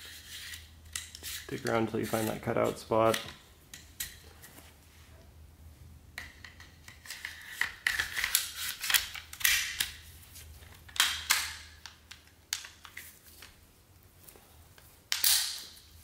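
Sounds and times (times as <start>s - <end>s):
metal sliding rasps: 0.0s - 2.8s.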